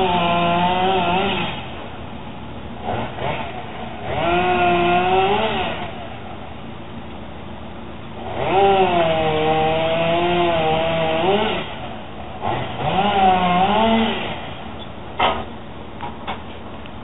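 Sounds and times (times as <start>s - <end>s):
chainsaw cutting wood: 0.0s - 1.8s, 2.8s - 6.1s, 8.2s - 15.5s.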